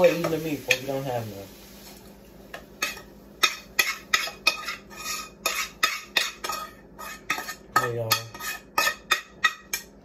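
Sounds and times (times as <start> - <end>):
metal utensil scraping frying pan: 2.8 - 9.8.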